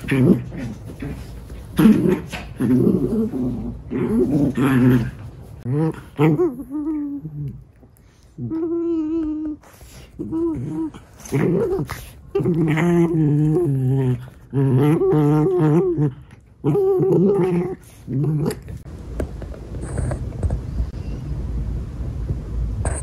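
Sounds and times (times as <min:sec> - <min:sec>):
dogs play-growling: 0:00.0 - 0:18.9.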